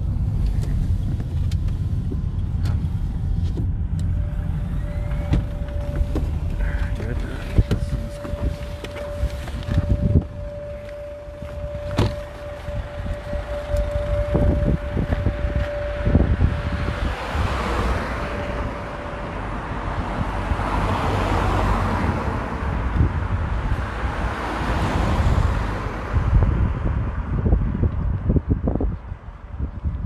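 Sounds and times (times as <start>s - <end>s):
vehicle and road noise: 0.0s - 30.0s
wind buffeting microphone: 0.0s - 30.0s
steady single tone: 2.2s - 23.9s.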